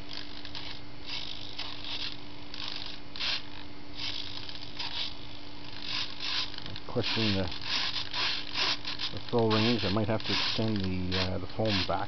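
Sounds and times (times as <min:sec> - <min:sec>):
servo whirring in short bursts: 0:00.0 - 0:12.0.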